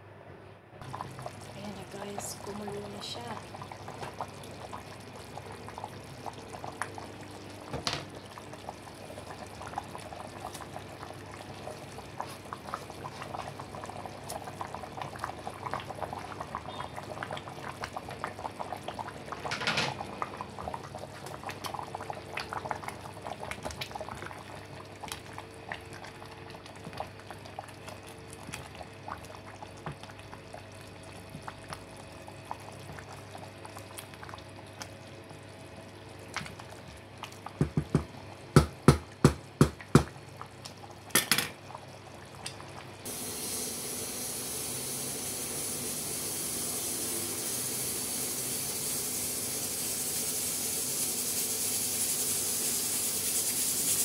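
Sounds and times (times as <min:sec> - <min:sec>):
curry bubbling in a pot: 0:00.8 - 0:43.2.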